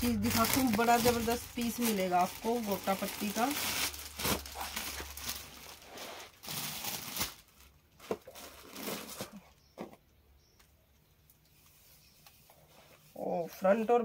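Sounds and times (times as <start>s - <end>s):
plastic and cloth crinkling: 0.0s - 9.8s.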